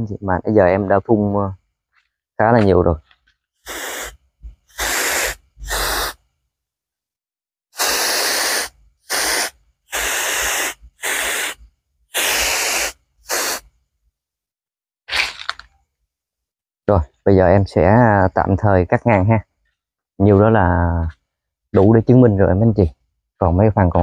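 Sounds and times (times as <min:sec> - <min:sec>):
hand sprayer spray bursts: 0:03.6 - 0:06.2, 0:07.8 - 0:13.7.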